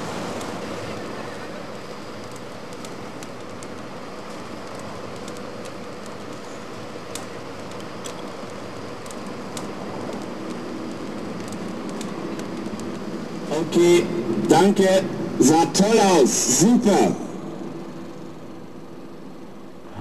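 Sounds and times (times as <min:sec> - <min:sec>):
rushing open-air noise: 0:00.0 - 0:20.0
faint crackles and clicks: 0:00.3 - 0:13.5.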